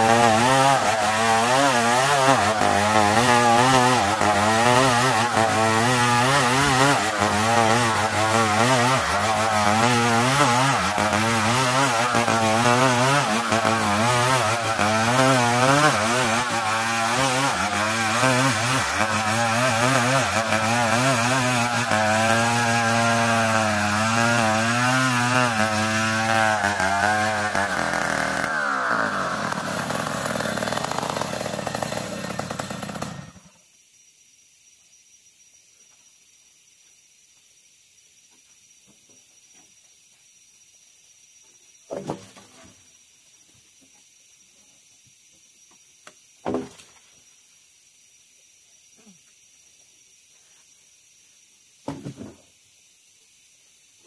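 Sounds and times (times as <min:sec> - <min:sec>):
chainsaw cutting log: 0:00.0 - 0:33.6, 0:41.9 - 0:42.8, 0:46.4 - 0:46.9, 0:51.9 - 0:52.4.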